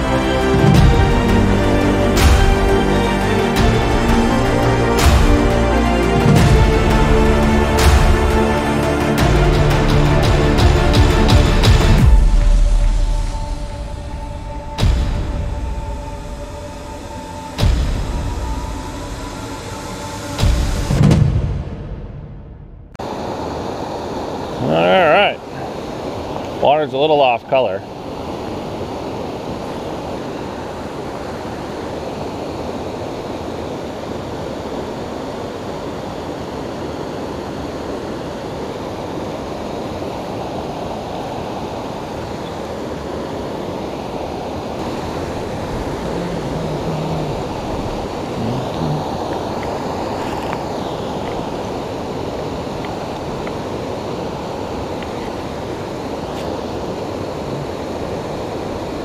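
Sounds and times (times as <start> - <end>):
stream rushing over rocks: 0.0 - 21.0, 23.0 - 59.0.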